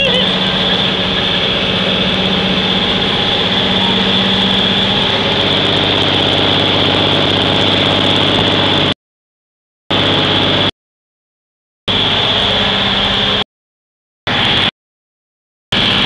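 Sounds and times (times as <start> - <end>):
truck engine drone: 0.0 - 9.0, 9.9 - 10.7, 11.9 - 13.5, 14.3 - 14.7, 15.7 - 16.0.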